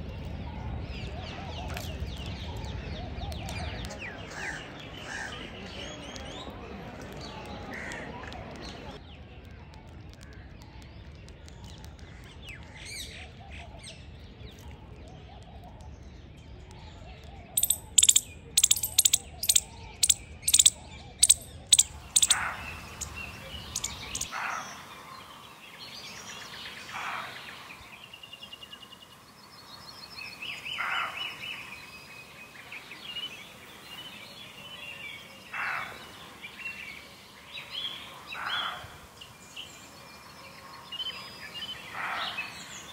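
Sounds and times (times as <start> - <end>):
faint high birdsong: 17.5 - 42.9
downward-sweeping bird calls: 17.6 - 29.1
sharp bird calls: 17.6 - 29.2.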